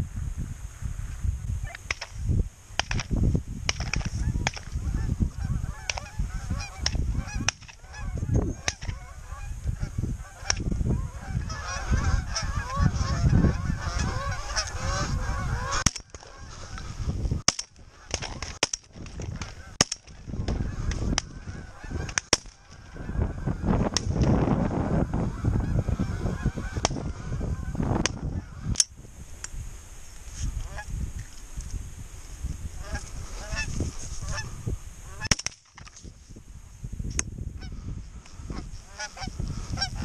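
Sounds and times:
wind rumble on microphone: 0.0 - 40.0
geese honking: 3.8 - 18.6, 19.2 - 28.8, 30.6 - 30.9, 32.8 - 35.4, 37.6 - 40.0.

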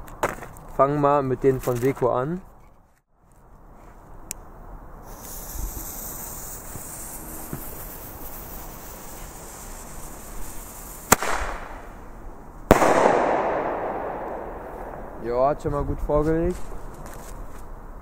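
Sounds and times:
firework fuse hissing: 5.0 - 12.3
firework tube firing crack: 5.0 - 15.6
firework shell bursting bang: 11.1 - 11.9, 12.7 - 15.6.

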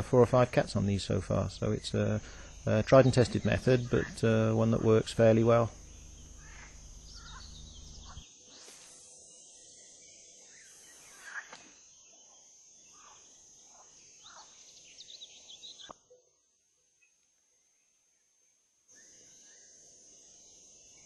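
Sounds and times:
steady high-pitched tone: 0.0 - 6.0
short bird chirps: 6.3 - 16.2.

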